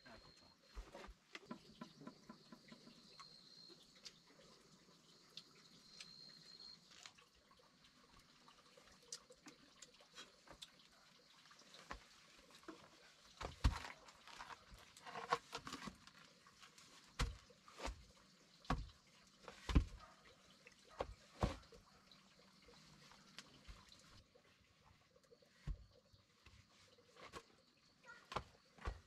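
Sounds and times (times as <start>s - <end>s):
wooden log knocking on dirt: 17.2s - 18.0s, 18.7s - 18.9s, 19.7s - 20.1s.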